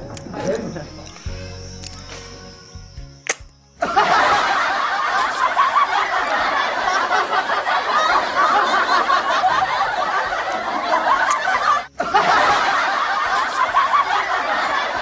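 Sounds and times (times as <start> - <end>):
snickering chuckling laughter: 3.8 - 15.0.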